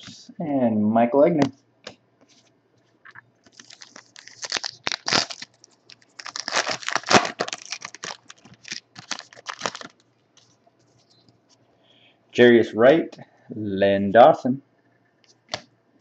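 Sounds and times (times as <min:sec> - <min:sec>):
foil wrapper tearing and crinkling: 0:03.5 - 0:10.0.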